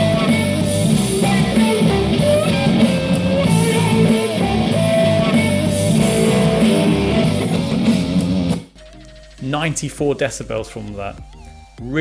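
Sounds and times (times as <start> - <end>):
loud guitar rock music: 0.0 - 8.7.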